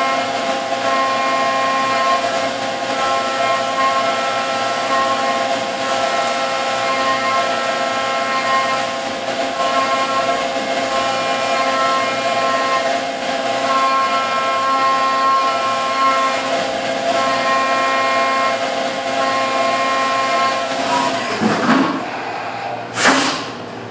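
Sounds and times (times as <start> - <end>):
high-pitched milling whine: 0.0 - 23.0
coolant spray hiss: 22.9 - 23.5.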